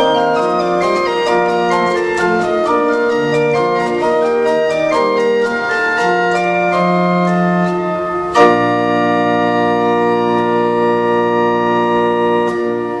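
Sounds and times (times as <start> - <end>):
church organ chords: 0.0 - 13.0.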